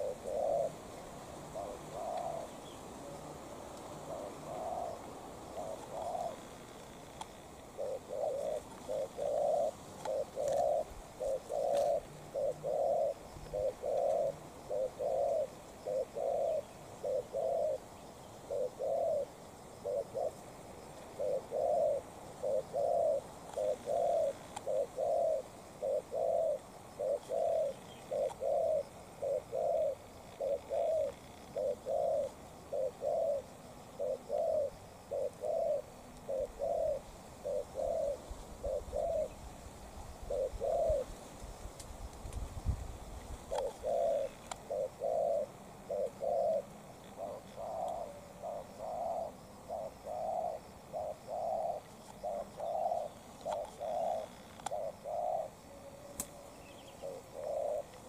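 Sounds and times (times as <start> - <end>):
dove cooing: 0.0 - 39.5, 40.2 - 41.2, 43.4 - 58.0.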